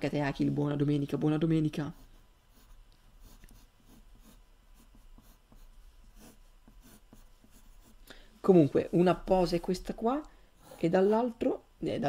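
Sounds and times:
pencil scratching on paper: 1.7 - 8.0.

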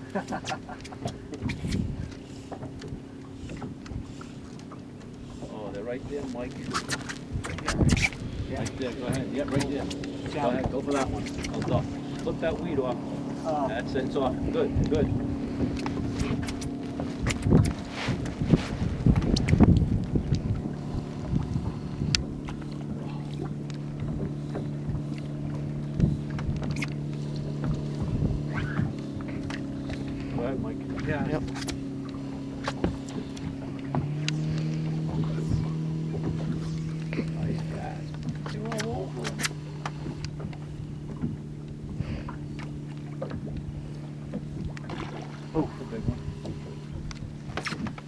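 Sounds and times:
boat motor running: 0.0 - 48.0
light clicks and knocks: 30.9 - 48.0.

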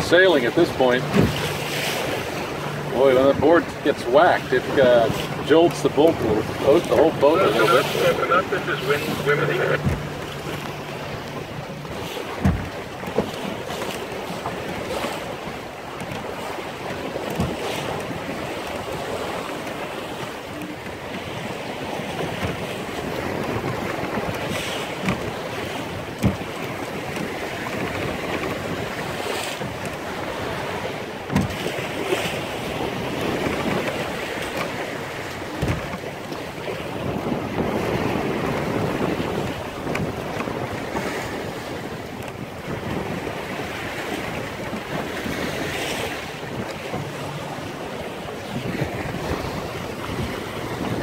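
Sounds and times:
wind and water rushing: 0.0 - 51.0
wind buffeting microphone: 0.0 - 51.0
centerboard clunking in trunk: 9.8 - 10.3, 12.4 - 13.3.

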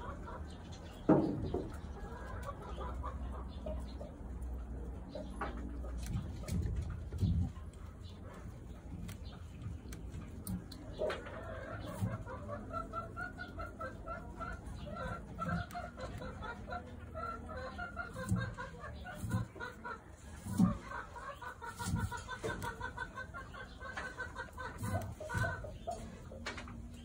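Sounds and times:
chickens clucking: 0.0 - 27.0.

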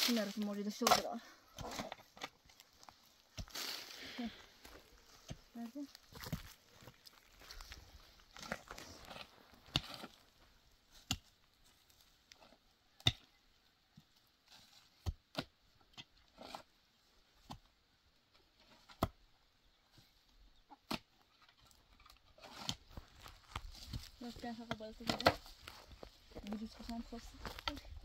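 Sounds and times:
pickaxe striking stony soil: 0.0 - 2.6, 8.4 - 10.2, 10.9 - 11.4, 13.0 - 13.3, 14.9 - 16.7, 22.4 - 25.7.

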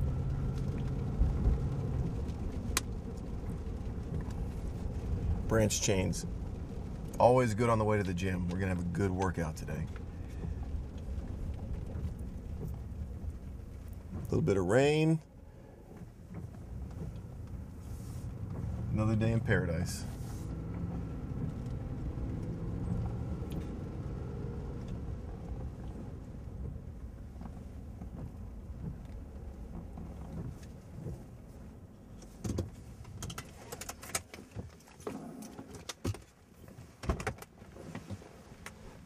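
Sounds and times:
car engine and road rumble: 0.0 - 39.0
sharp clicks and knocks: 32.1 - 38.8.

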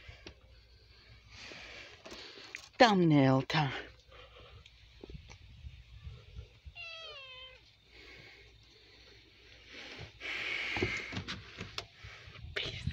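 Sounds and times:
cat meowing: 6.7 - 7.7.

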